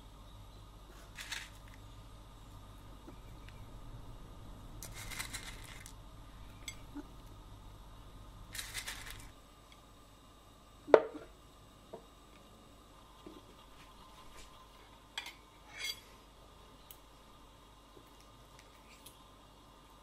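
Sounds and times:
crispy garlic crumbling rustles: 0.9 - 1.9, 4.8 - 6.0, 8.5 - 9.4.

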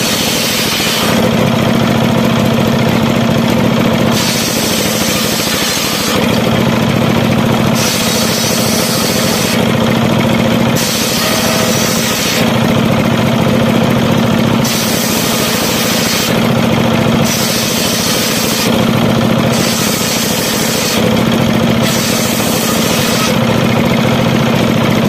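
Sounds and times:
circular saw blade ripping boards: 0.0 - 1.3, 4.1 - 6.5, 7.7 - 9.7, 10.8 - 12.6, 14.6 - 16.6, 17.2 - 23.4
diesel engine running: 0.0 - 25.0.

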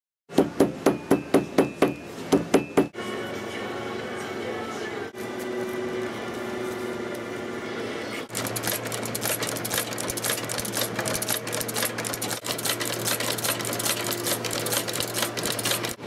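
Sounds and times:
background music: 3.0 - 5.2
sewing machine clattering: 8.3 - 16.0.

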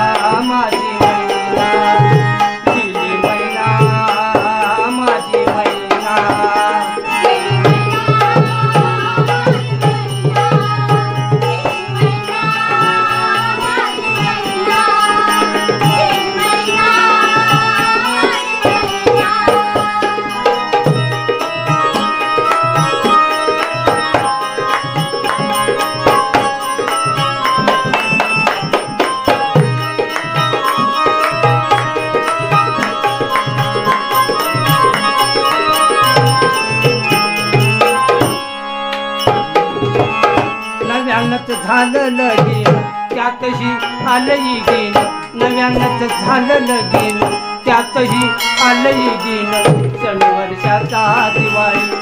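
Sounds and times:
electronic keyboard melody: 0.0 - 52.0
small hand cymbals: 46.1 - 50.1.

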